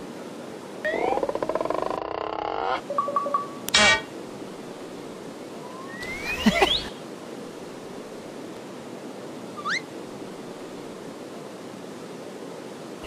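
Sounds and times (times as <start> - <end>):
sea surf: 2.8 - 13.0
short rising chirp: 5.7 - 6.9
whistle-like sliding tones: 5.7 - 6.9.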